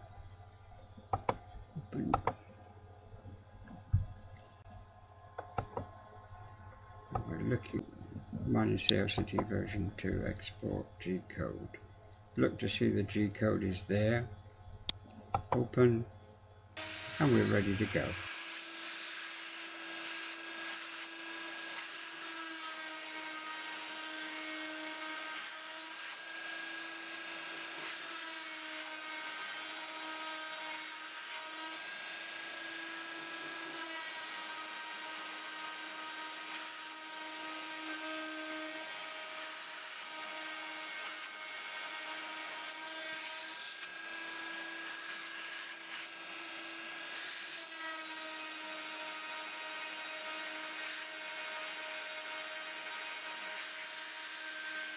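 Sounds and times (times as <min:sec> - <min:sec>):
rotary tool high whine: 0:16.8 - 0:54.9.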